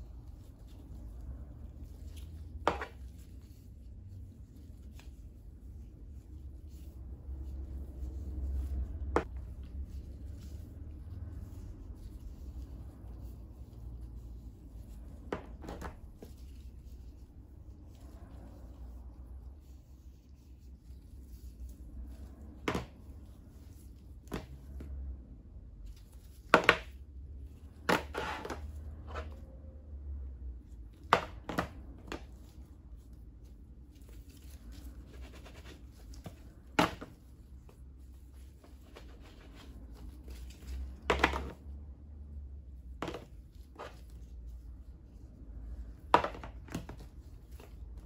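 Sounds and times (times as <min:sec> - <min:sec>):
low steady hum: 0:00.0 - 0:48.0
plastic tubs knocking and clicking: 0:41.1 - 0:41.6, 0:46.2 - 0:47.0.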